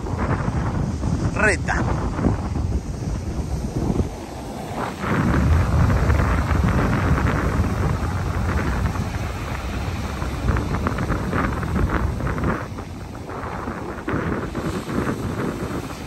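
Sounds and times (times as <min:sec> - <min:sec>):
surf breaking on shore: 0:00.0 - 0:16.0
wind buffeting microphone: 0:00.0 - 0:16.0.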